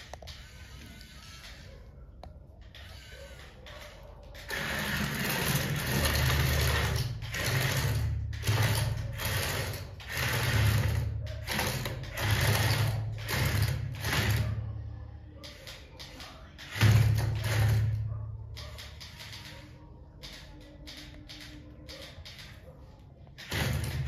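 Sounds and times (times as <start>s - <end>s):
toy electric motors whirring: 0.0s - 14.7s, 15.4s - 18.0s, 23.4s - 24.0s.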